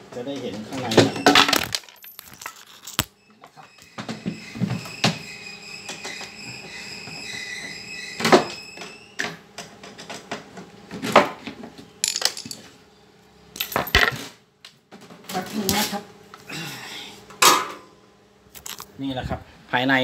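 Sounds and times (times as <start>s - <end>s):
metal parts clicking and knocking: 1.2s - 3.1s, 12.0s - 12.6s, 13.6s - 14.3s, 18.6s - 18.9s
thin high whine: 3.1s - 9.4s.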